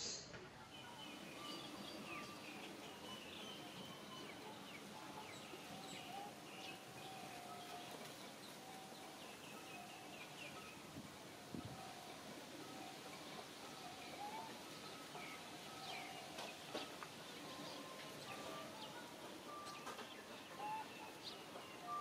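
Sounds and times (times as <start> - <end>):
small birds chirping: 0.7 - 11.9, 12.6 - 22.0.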